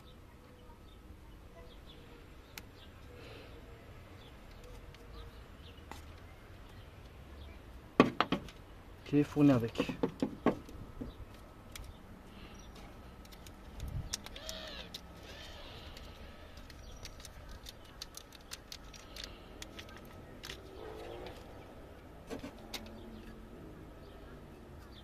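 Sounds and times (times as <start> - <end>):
plastic packet crinkling: 13.2 - 20.6
bird calls: 14.1 - 21.7.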